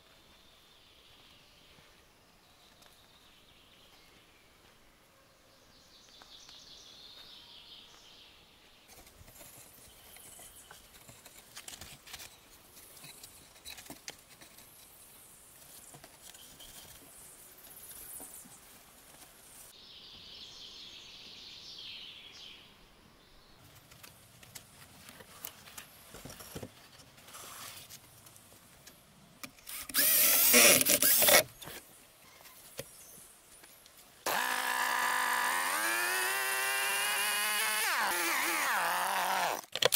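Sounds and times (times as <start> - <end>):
faint birdsong: 0.0 - 11.5, 14.4 - 36.5
chainsaw running: 29.7 - 31.4, 34.2 - 39.7.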